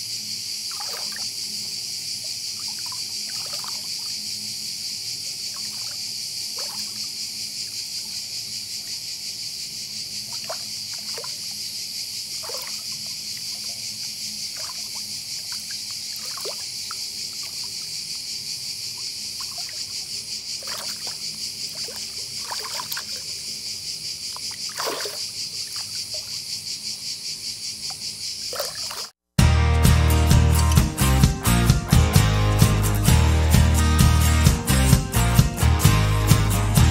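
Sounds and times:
high-pitched insect chorus: 0:00.0 - 0:29.1
short insect chirps: 0:00.0 - 0:29.1.

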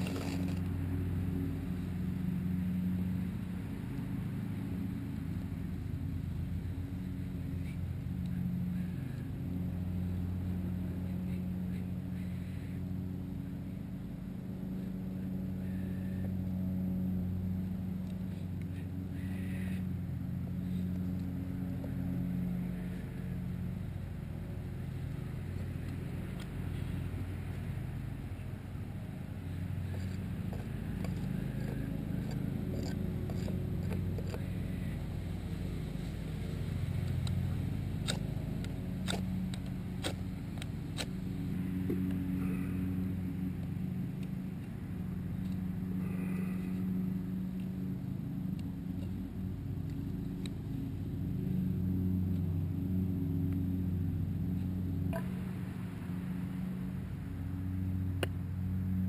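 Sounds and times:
low motor drone: 0:00.0 - 0:59.0.

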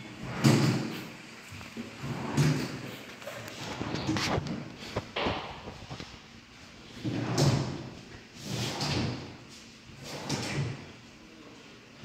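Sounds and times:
drawers sliding on runners: 0:00.2 - 0:01.1, 0:01.8 - 0:05.0, 0:07.0 - 0:10.9.

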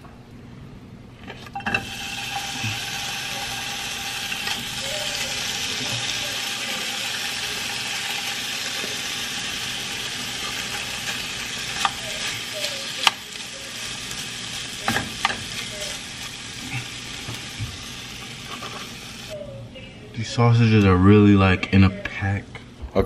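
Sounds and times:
hash sizzling in frying pan: 0:01.7 - 0:19.4
utensil clicking against pan: 0:11.7 - 0:12.1.

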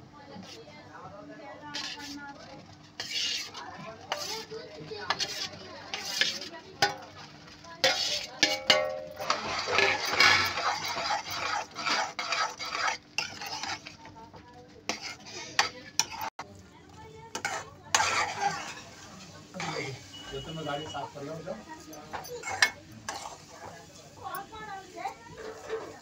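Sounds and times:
spoon scraping and clinking pan: 0:01.7 - 0:02.2, 0:03.0 - 0:07.2, 0:07.8 - 0:14.0, 0:14.9 - 0:16.4, 0:17.4 - 0:21.1, 0:21.8 - 0:24.5.

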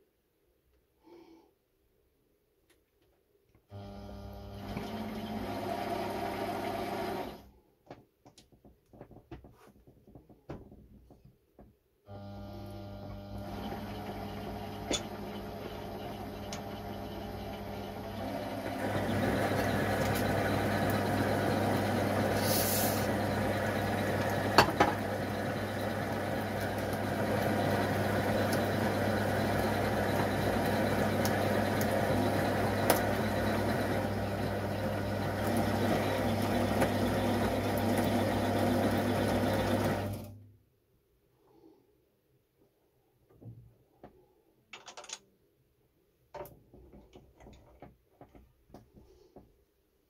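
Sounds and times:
lathe motor hum: 0:03.8 - 0:07.4, 0:12.2 - 0:40.3.

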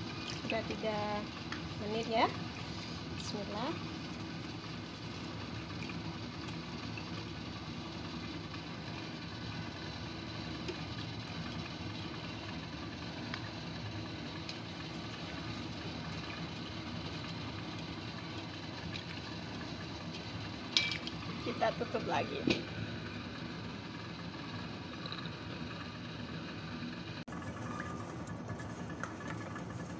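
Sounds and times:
water boiling hard: 0:00.0 - 0:29.9.

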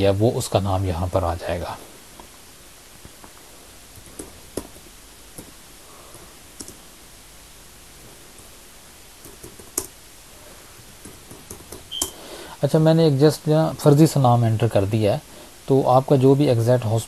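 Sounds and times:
faint room hiss: 0:00.0 - 0:17.0
keyboard keys clicking: 0:09.2 - 0:09.9.

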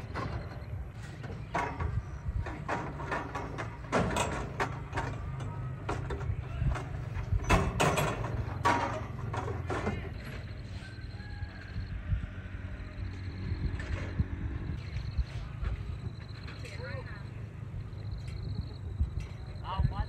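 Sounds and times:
metal stools clanking: 0:00.0 - 0:11.0
low steady rumble: 0:00.0 - 0:20.0.

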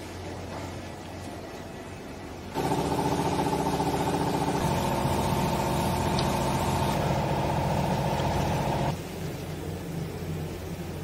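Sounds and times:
hydraulic power unit humming: 0:02.4 - 0:09.0.

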